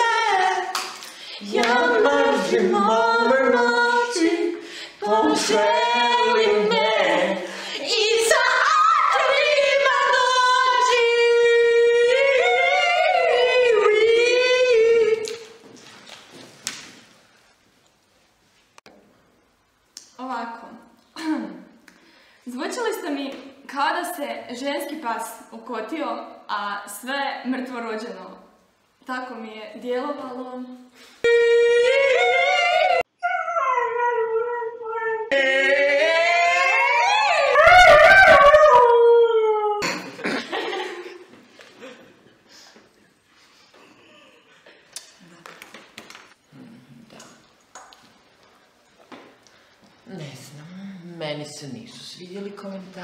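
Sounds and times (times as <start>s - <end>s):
woman singing a long note: 31.2s - 33.0s
dog howling: 32.1s - 39.8s.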